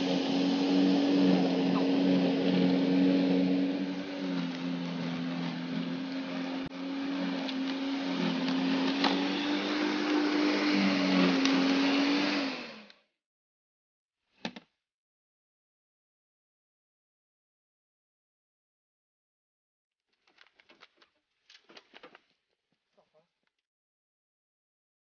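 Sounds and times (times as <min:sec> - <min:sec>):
electric lawn scarifier motor humming: 0:00.0 - 0:12.9.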